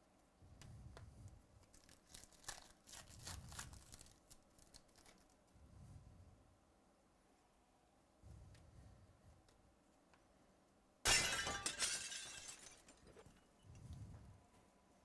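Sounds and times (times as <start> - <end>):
foil wrapper crackling: 1.6 - 5.5.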